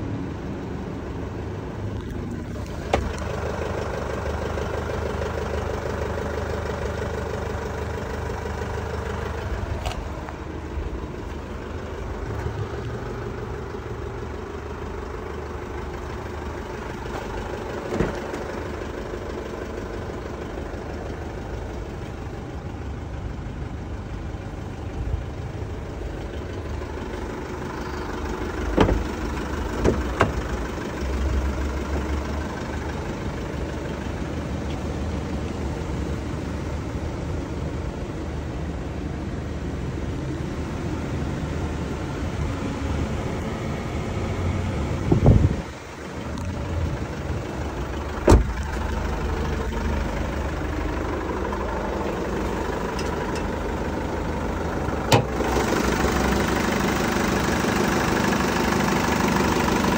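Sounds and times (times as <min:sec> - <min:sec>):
pickup engine idling: 0:00.0 - 0:59.9.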